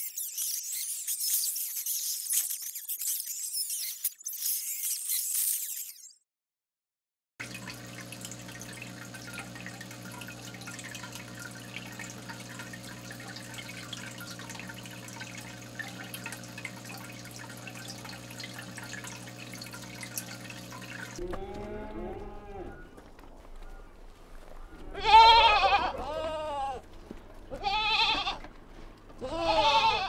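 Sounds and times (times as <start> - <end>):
aquarium water bubbling: 7.4 - 22.8.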